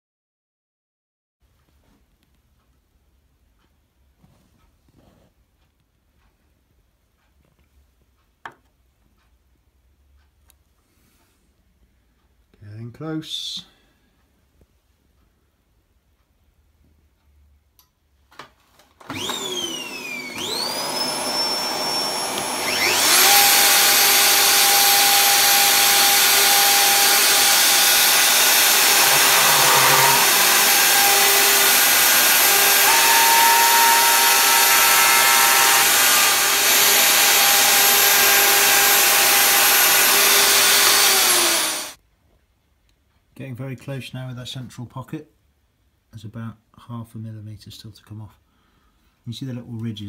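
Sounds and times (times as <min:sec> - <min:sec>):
router high whine: 0:19.1 - 0:42.0
router milling aluminium: 0:19.1 - 0:42.0.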